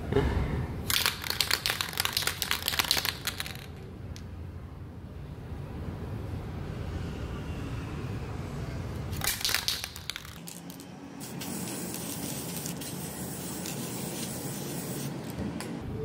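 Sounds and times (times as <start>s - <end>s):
spray paint can hissing: 0.9s - 3.7s, 9.2s - 15.3s.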